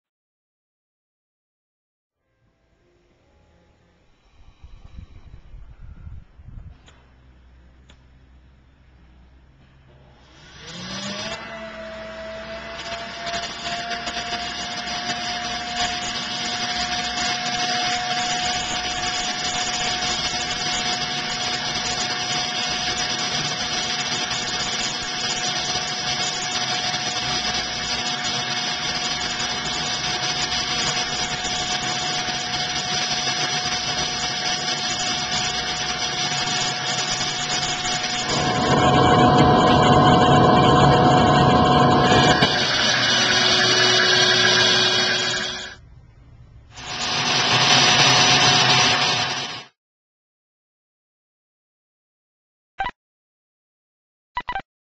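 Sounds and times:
leaf blower motor whining: 10.2 - 45.8, 46.8 - 49.7
air rushing down vent: 37.1 - 45.7.

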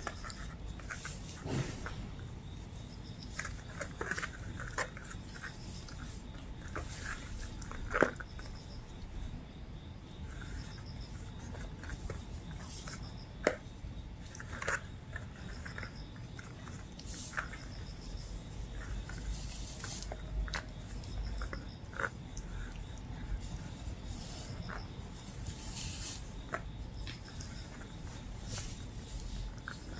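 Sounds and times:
rope rustling and dragging: 23.2 - 29.9.

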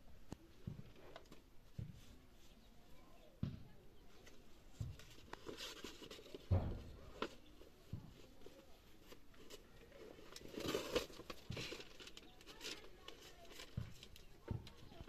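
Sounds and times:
book pages turning: 4.2 - 15.0.

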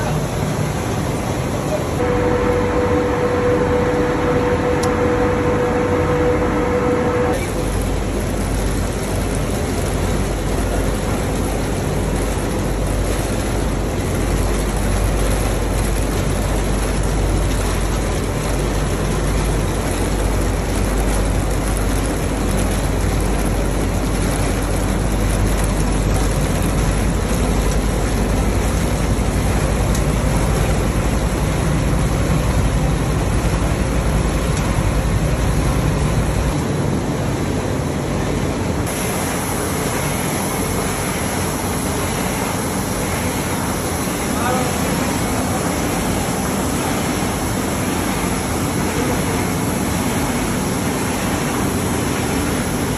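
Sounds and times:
low machinery hum: 0.0 - 52.9.

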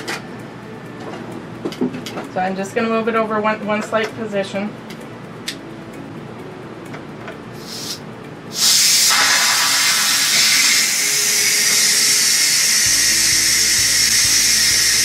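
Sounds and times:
steam hissing from valve: 7.6 - 15.0.

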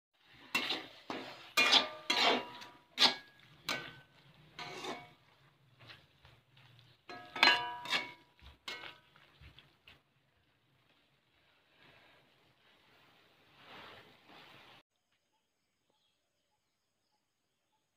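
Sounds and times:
spatula scraping metal pan: 0.2 - 6.1, 6.8 - 9.2.

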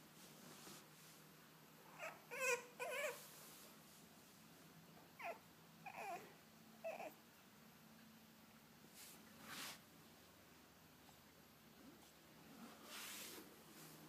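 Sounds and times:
puppy whining: 1.9 - 3.3, 5.2 - 7.2.

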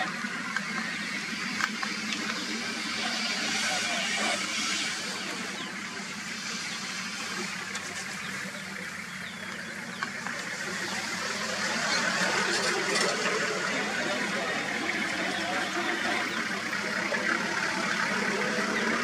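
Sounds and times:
vehicle engine idling: 0.0 - 19.0.

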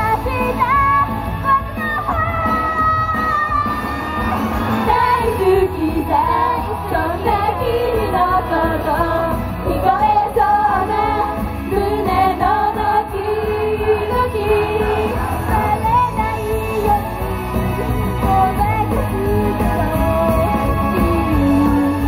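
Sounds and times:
amplified music with heavy bass: 0.0 - 22.0
female group singing: 4.8 - 17.3.

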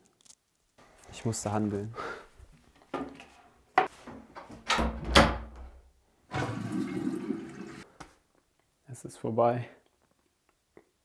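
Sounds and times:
toilet flushing: 6.3 - 7.9.

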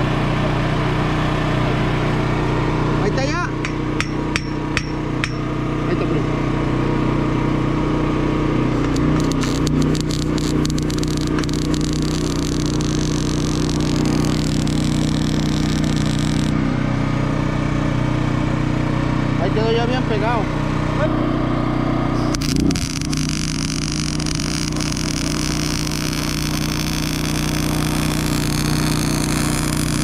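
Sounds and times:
small engine running: 0.0 - 30.0
sharp metal ticks: 3.6 - 5.5, 8.9 - 16.5
welding arc crackling and hissing: 8.8 - 16.6, 22.2 - 30.0.

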